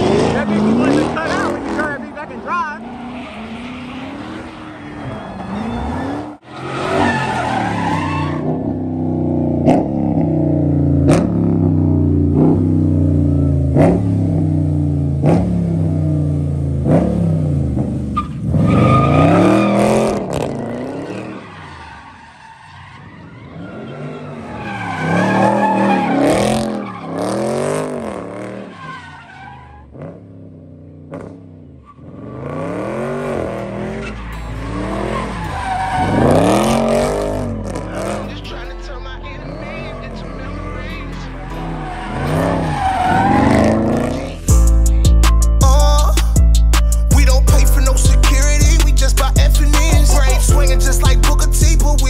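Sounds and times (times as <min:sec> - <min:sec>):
tyres screeching: 0:00.0 - 0:08.8, 0:18.2 - 0:30.0, 0:31.8 - 0:44.6, 0:46.0 - 0:52.0
car engines revving: 0:00.0 - 0:52.0.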